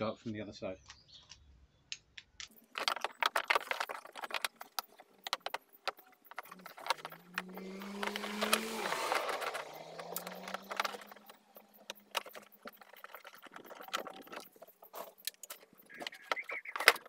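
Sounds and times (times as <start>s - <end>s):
engine revving: 6.5s - 12.7s.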